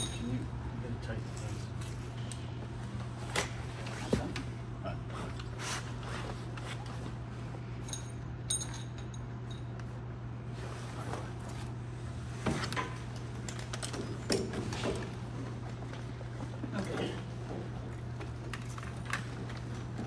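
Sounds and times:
steady low hum: 0:00.0 - 0:20.0
metallic jingle: 0:07.8 - 0:09.7.

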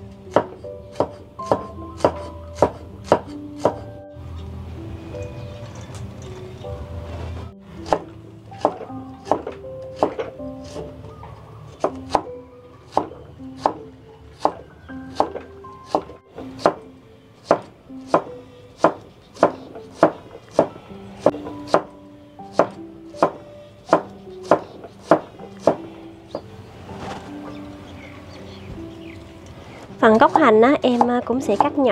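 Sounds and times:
background music: 0:00.0 - 0:31.9
cleaver chopping on wooden block: 0:00.3 - 0:03.8, 0:12.9 - 0:13.8, 0:14.4 - 0:16.8, 0:17.4 - 0:20.7, 0:22.5 - 0:25.8.

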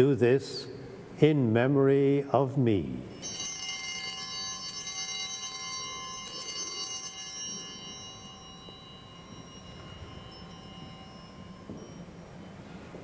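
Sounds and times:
altar bell ringing: 0:03.1 - 0:13.0.

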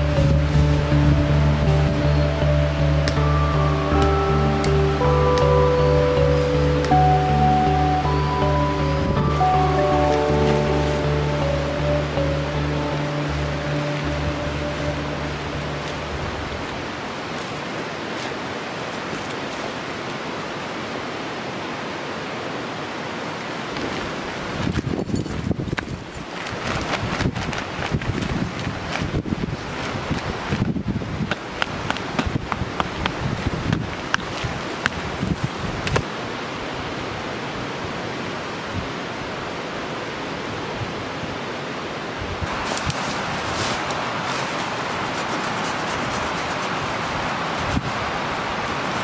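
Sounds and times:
flowing water rushing: 0:00.0 - 0:49.0
tarp fabric rustling: 0:05.7 - 0:20.6, 0:23.2 - 0:31.0, 0:42.4 - 0:49.0.

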